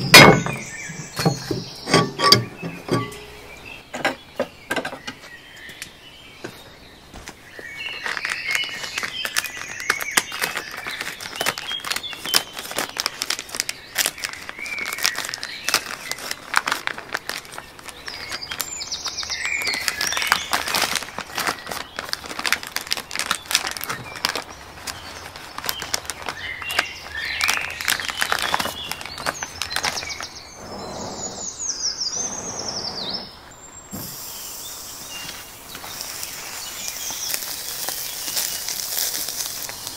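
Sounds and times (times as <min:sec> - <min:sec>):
birds chirping and singing: 0:00.0 - 0:16.3, 0:23.2 - 0:38.8
plastic package crinkling: 0:07.8 - 0:30.4, 0:35.2 - 0:39.9.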